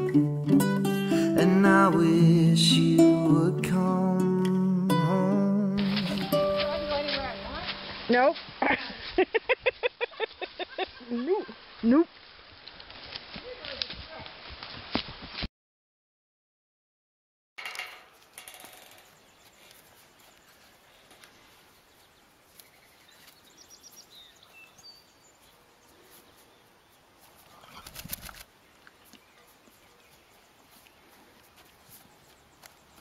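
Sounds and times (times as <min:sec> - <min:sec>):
faint pasture ambience: 0:17.8 - 0:33.0
bird chirps: 0:21.8 - 0:25.6
horse snorting: 0:27.5 - 0:28.0.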